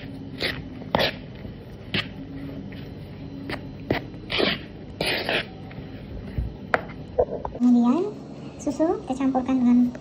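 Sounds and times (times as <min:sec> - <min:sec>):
spoon scraping flour in bowl: 0:00.0 - 0:06.6.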